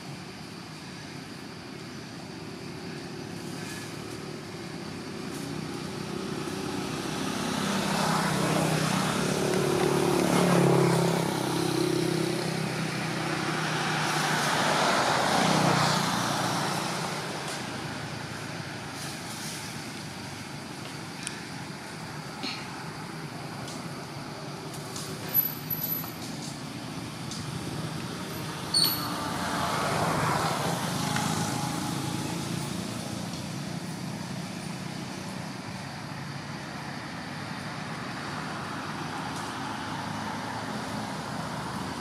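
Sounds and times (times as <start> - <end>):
traffic background hum: 0.0 - 42.0
motor vehicle passing: 5.3 - 19.8.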